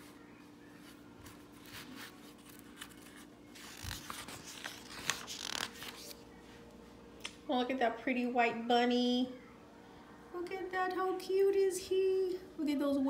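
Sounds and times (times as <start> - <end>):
paper page rustling: 0.8 - 6.3.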